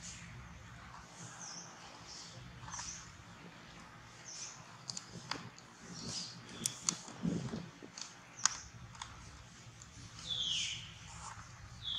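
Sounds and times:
sharp clicks: 0:06.4 - 0:10.4.

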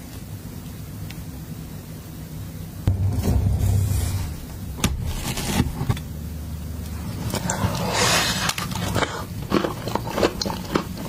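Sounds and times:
steady low hum: 0:00.0 - 0:11.0
thud: 0:02.9 - 0:06.0.

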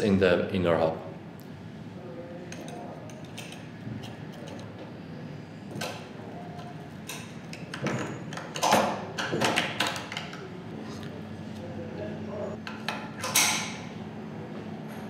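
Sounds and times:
metal circlip clicking and scraping: 0:02.5 - 0:04.7.

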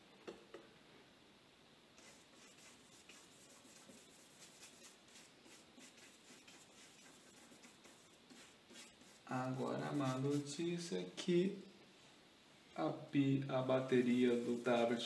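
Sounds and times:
paintbrush scratching on paper: 0:02.0 - 0:10.6, 0:13.8 - 0:15.0.

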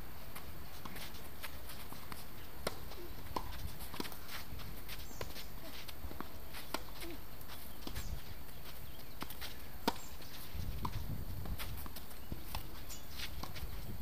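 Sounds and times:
shoes scuffing on hard court: 0:00.2 - 0:14.0
tennis ball struck by rackets: 0:02.1 - 0:04.2, 0:09.2 - 0:10.1.

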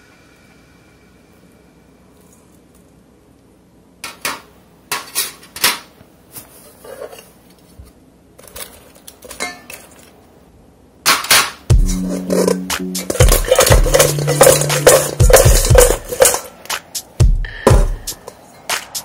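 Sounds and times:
tongs clinking in metal bowl: 0:12.0 - 0:16.5.

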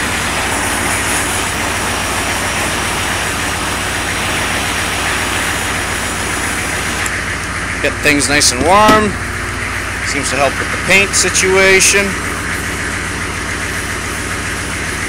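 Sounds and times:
propane torch hissing: 0:00.0 - 0:07.4
engine idling: 0:00.0 - 0:15.0.

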